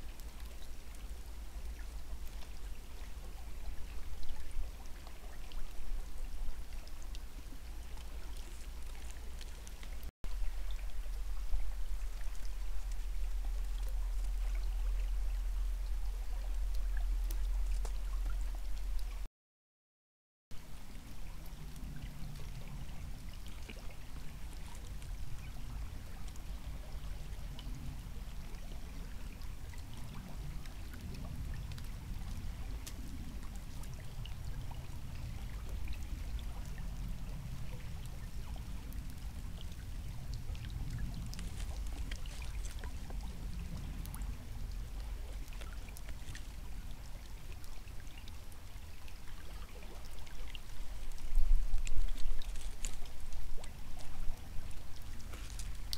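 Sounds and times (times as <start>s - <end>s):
faint ticks: 12.2s - 19.2s.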